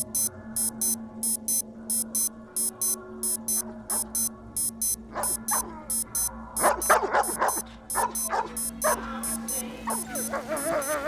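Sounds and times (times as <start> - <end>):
electronic alarm beeping: 0.0 - 11.0
dog whimpering and yelping: 9.9 - 11.0
dog whining: 9.9 - 11.0.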